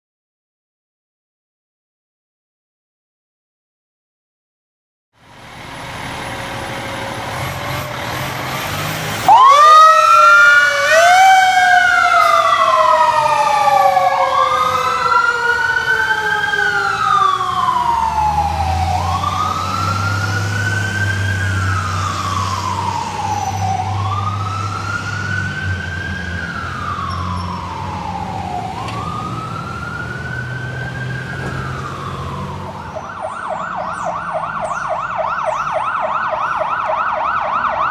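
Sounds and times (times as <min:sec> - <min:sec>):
fire truck engine rumble: 0:05.2 - 0:37.9
siren wailing: 0:09.2 - 0:37.9.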